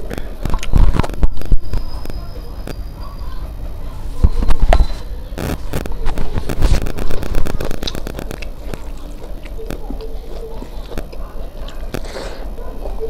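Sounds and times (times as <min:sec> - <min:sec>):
mouth chewing: 0:00.0 - 0:13.0
fingers squishing food: 0:04.3 - 0:13.0.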